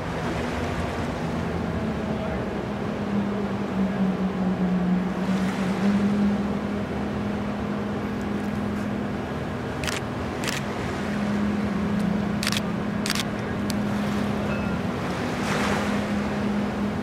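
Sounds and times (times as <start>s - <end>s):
ferry engines humming: 0.0s - 17.0s.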